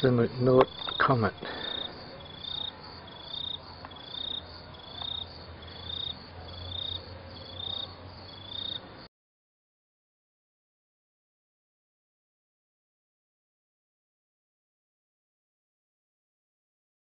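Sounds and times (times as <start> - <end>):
cricket chirping: 0.0 - 9.1.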